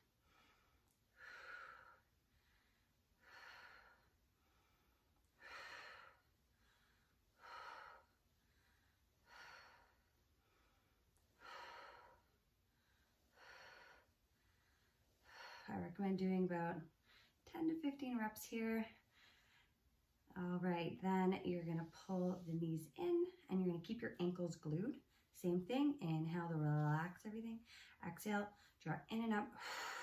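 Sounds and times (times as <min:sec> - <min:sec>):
woman breathing faintly: 0:00.1 - 0:15.7.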